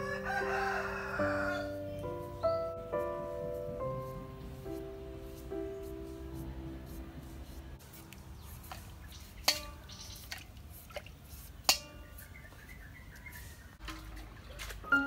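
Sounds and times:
water dripping and splashing: 0:07.3 - 0:12.3, 0:13.2 - 0:15.0.

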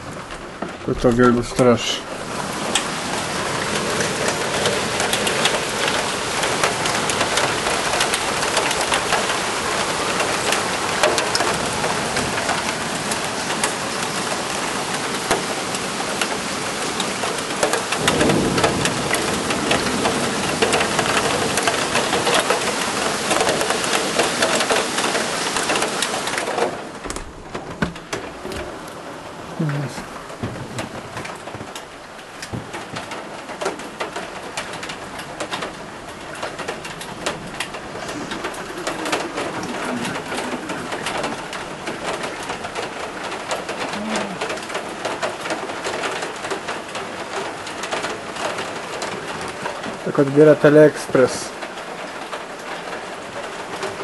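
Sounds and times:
heavy rain on window glass: 0:00.0 - 0:54.0
low thunder rumble: 0:17.9 - 0:25.2, 0:26.4 - 0:46.6.

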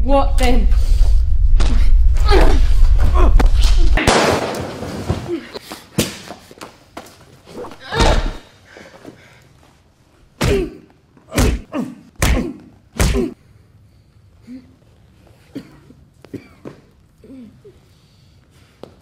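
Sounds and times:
movement and breath: 0:00.7 - 0:03.9, 0:07.5 - 0:10.3, 0:16.6 - 0:19.0.

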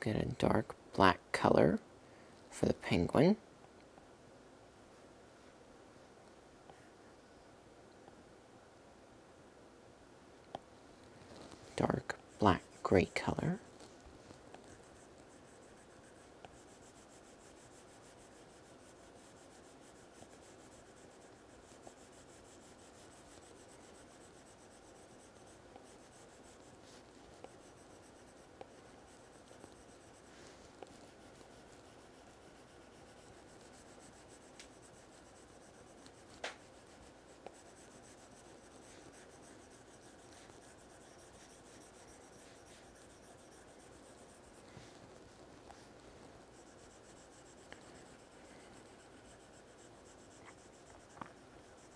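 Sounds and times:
stylus rubbing on glass screen: 0:11.2 - 0:51.9.

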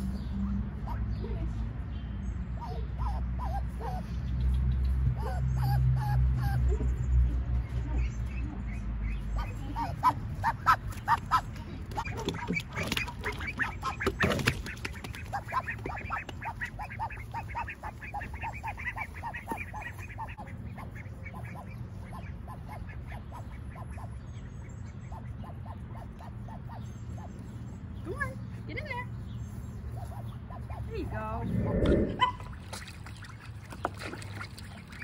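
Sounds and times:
ducklings quacking: 0:00.2 - 0:01.6, 0:02.6 - 0:35.0
steady low rumble: 0:29.2 - 0:32.8.

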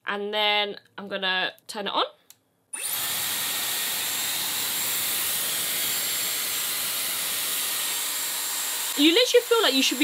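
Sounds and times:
hair styler blowing air: 0:02.8 - 0:10.0.

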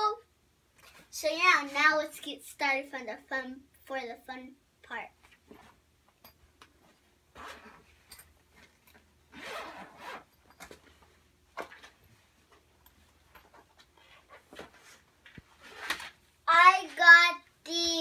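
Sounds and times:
zipper being pulled open: 0:07.3 - 0:08.3, 0:09.3 - 0:10.8, 0:15.6 - 0:16.2.

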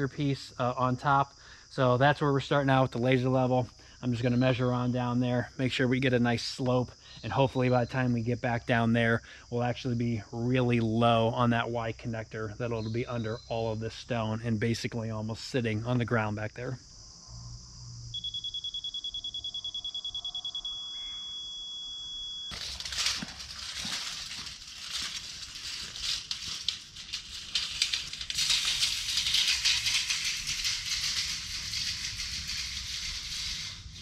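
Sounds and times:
crickets chirring: 0:00.0 - 0:34.0
receiver beeping high pitch: 0:18.2 - 0:22.5
scratchy crackling and crunching: 0:22.5 - 0:34.0.

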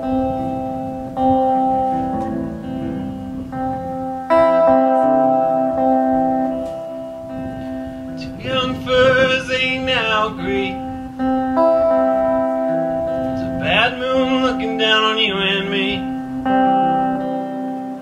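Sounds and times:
electric guitar ringing chords: 0:00.0 - 0:18.0
man singing: 0:08.1 - 0:11.0, 0:13.2 - 0:16.5.

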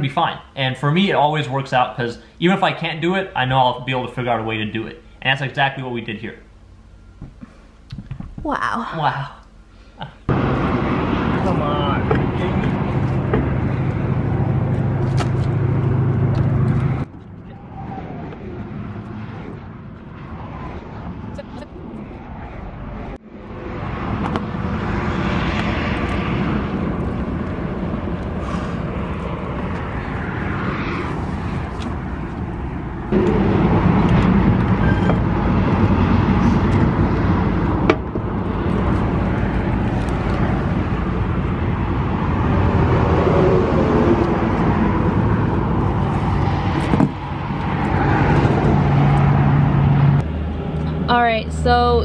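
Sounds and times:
highway vehicle rumble: 0:09.5 - 0:52.0
wind noise: 0:10.3 - 0:51.1.

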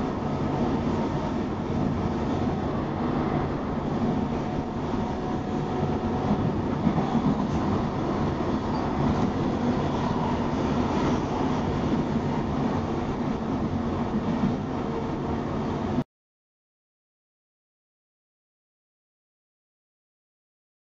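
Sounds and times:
train wheels on rail: 0:00.0 - 0:16.0.

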